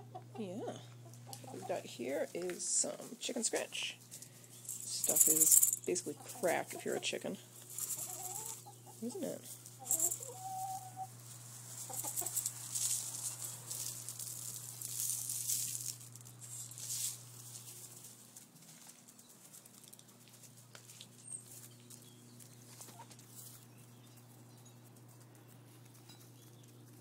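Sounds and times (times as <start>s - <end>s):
hen clucking: 0.0s - 2.0s, 5.9s - 12.6s
steady low hum: 0.0s - 27.0s.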